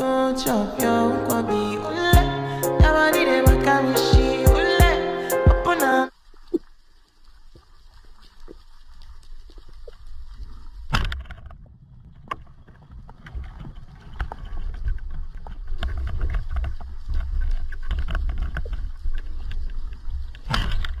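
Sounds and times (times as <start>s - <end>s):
underwater rumble of water: 6.1s - 21.0s.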